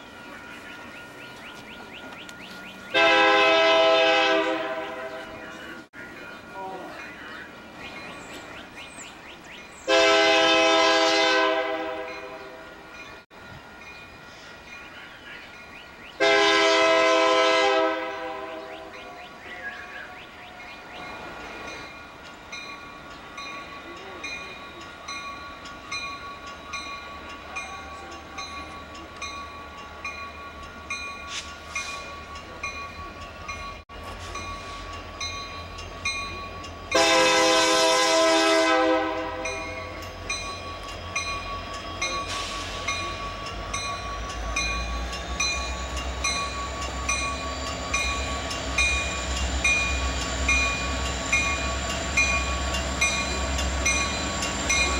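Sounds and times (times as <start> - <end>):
locomotive engine rumble: 0.0 - 54.9
railroad crossing bell ringing: 0.0 - 54.9
locomotive air horn: 2.9 - 5.1, 9.9 - 12.4, 16.2 - 18.6, 36.9 - 39.6.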